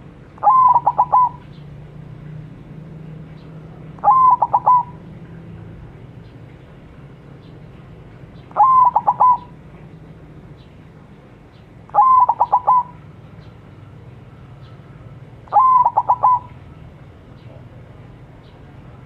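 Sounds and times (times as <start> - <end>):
dove cooing: 0.4 - 1.6, 3.9 - 5.4, 8.4 - 9.6, 11.9 - 13.2, 13.8 - 16.9.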